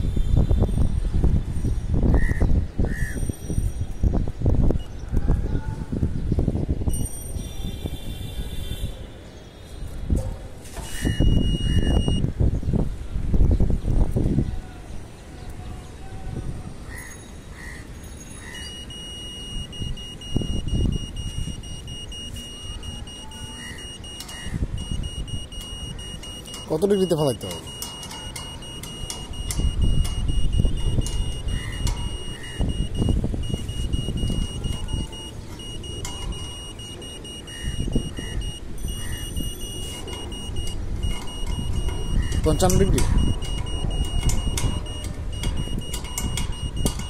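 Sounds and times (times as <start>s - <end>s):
meter beeping high-pitched: 11.0s - 12.2s, 18.4s - 47.0s.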